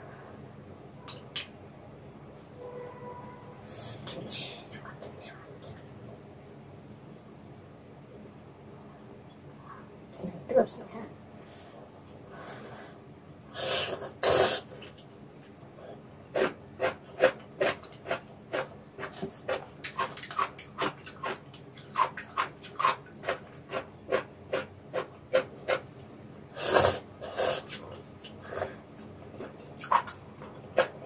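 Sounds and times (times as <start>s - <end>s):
wet chewing and mouth clicks: 16.4s - 25.9s, 27.7s - 31.0s.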